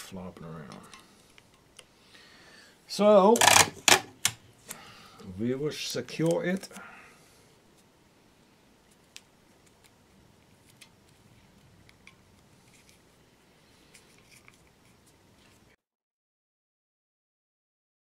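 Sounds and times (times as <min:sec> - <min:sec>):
low hiss: 0:00.0 - 0:15.8
masking tape crinkling: 0:03.4 - 0:04.1.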